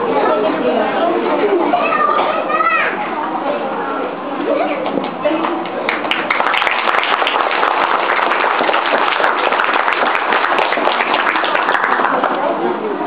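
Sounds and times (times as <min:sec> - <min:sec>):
crowd voices: 0:00.0 - 0:13.0
audience clapping: 0:05.0 - 0:12.6.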